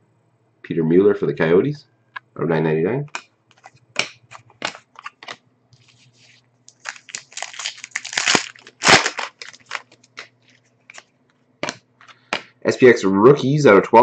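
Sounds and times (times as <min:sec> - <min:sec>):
wrapper crinkling: 0:03.5 - 0:11.1
trading cards shuffling: 0:03.5 - 0:12.5
foil pack tearing: 0:06.7 - 0:10.3.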